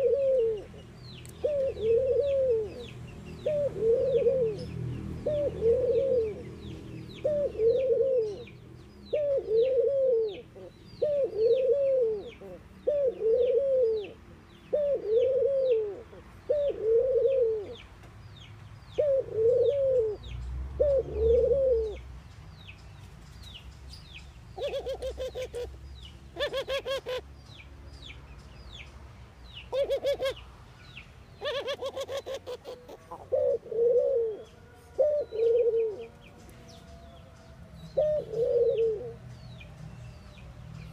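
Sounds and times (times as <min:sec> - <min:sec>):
dove cooing: 0:00.0 - 0:00.8, 0:01.4 - 0:06.6, 0:07.2 - 0:17.8, 0:19.0 - 0:22.0, 0:24.6 - 0:27.2, 0:29.7 - 0:30.4, 0:31.4 - 0:36.3, 0:37.9 - 0:39.2.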